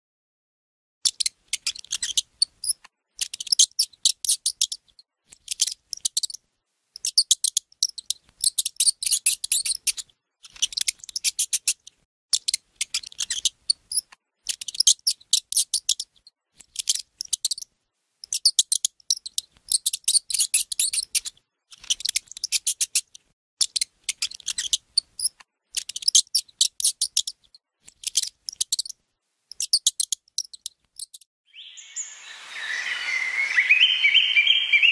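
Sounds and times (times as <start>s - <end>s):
rapid high-pitched chirping: 1.1s - 6.4s, 7.0s - 17.6s, 18.2s - 28.9s, 29.5s - 31.3s.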